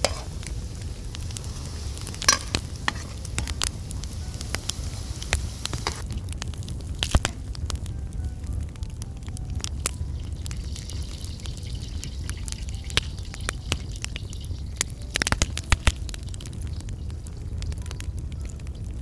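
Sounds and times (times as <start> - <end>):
metal spoon scraping a pan: 0.0 - 0.5, 1.4 - 3.7, 5.7 - 6.0
fries frying: 0.0 - 19.0
wood fire crackling: 0.0 - 19.0.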